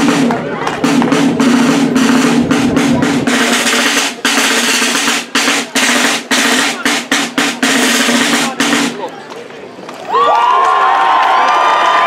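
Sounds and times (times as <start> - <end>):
snare drum rolls: 0.0 - 9.1.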